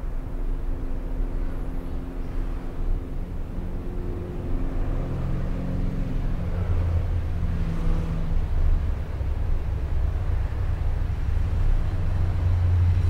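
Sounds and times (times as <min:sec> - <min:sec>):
car passing on street: 0:03.9 - 0:13.0.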